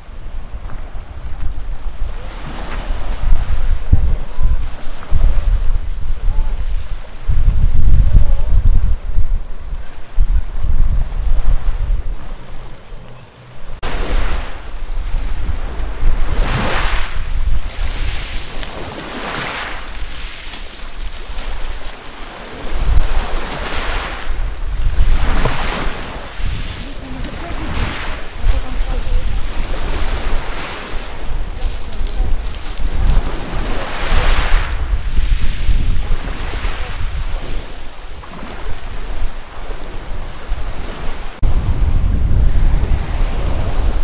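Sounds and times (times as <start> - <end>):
wind buffeting microphone: 0.0 - 44.0
waves washing over pebbles: 13.8 - 41.4.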